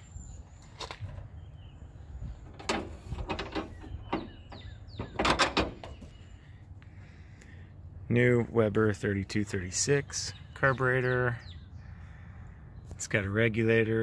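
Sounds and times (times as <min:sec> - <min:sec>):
knocks clicks and scrapes: 0:02.4 - 0:06.2.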